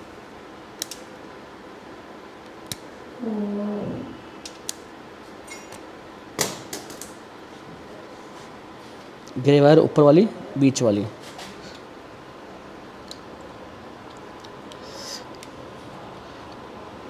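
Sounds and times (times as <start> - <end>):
pliers clicking on wire: 0.8 - 1.1
short low voiced hum: 3.2 - 4.3.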